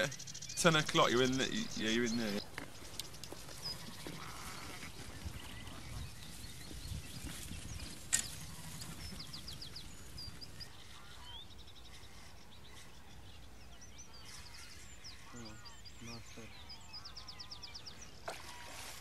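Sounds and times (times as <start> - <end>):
low wind rumble: 0.0 - 14.3
songbirds chirping trills: 0.0 - 19.0.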